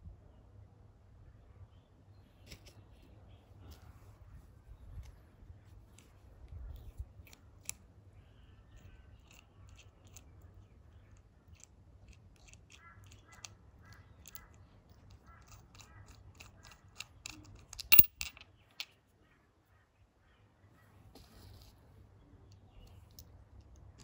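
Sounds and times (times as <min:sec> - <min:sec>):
small metallic clicks: 0:05.9 - 0:07.8, 0:08.7 - 0:19.0
loud metal clink: 0:17.9 - 0:18.3.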